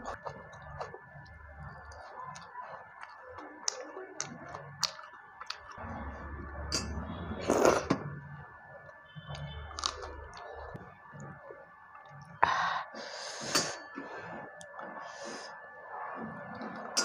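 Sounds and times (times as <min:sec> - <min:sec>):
mouth chewing clicks and smacks: 0:00.0 - 0:05.8.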